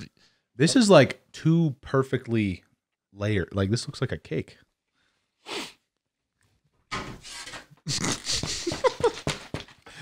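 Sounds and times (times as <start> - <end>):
man gagging and groaning: 7.9 - 8.6.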